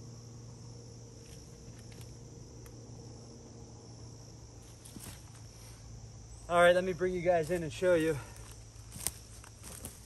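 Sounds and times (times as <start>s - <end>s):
low hum: 0.0s - 6.5s
insects chirping: 0.0s - 10.0s.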